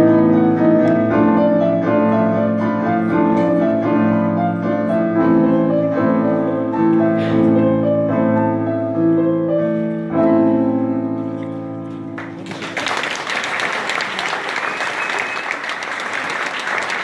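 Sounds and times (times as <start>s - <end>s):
audience applause: 12.2s - 17.0s.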